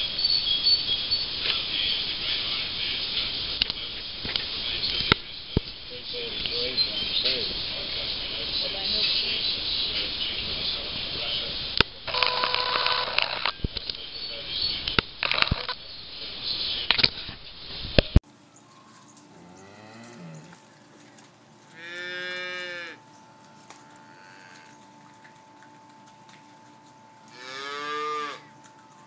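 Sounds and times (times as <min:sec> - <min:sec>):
cow mooing: 0:19.3 - 0:20.9, 0:21.6 - 0:25.7, 0:26.7 - 0:28.9.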